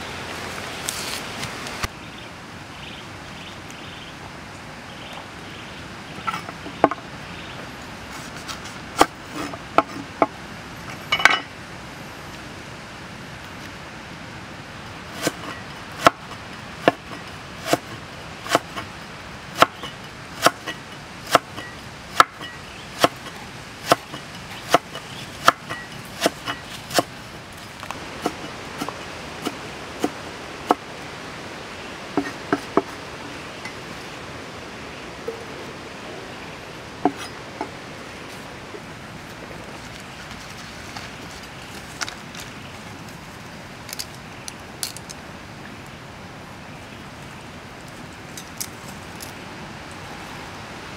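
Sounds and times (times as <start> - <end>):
cleaver chopping on wooden board: 16.8 - 17.9, 23.0 - 27.1.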